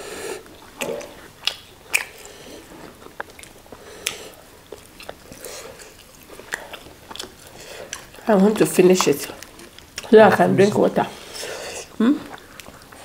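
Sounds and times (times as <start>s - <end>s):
person chewing food: 0.0s - 13.0s
wet mouth sounds: 0.3s - 8.3s, 11.2s - 13.0s.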